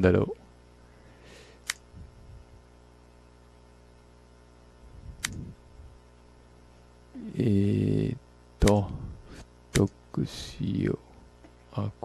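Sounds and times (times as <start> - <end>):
low electrical hum: 0.0 - 12.0
computer mouse click: 5.2 - 5.4.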